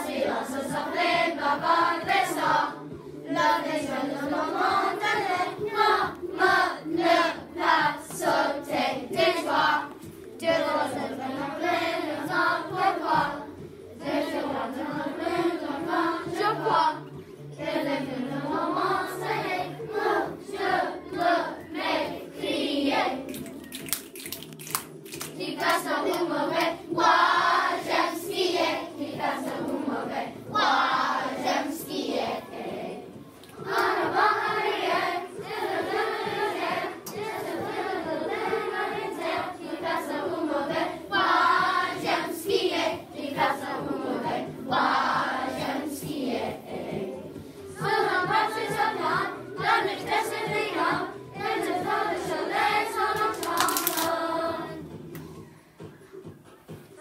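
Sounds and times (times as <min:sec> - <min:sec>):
children singing: 0:00.0 - 0:23.3, 0:25.4 - 0:55.0
hand claps: 0:23.3 - 0:26.8, 0:53.1 - 0:54.2.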